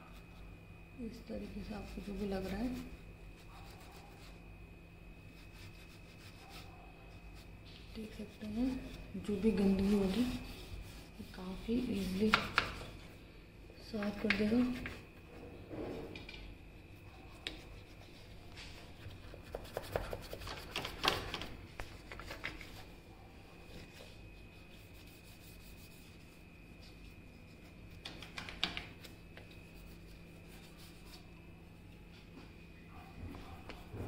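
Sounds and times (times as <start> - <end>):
faint steady hum: 0.0 - 34.0
stiff brush scrubbing: 1.3 - 4.4, 5.2 - 13.1, 23.8 - 27.7, 29.4 - 31.4.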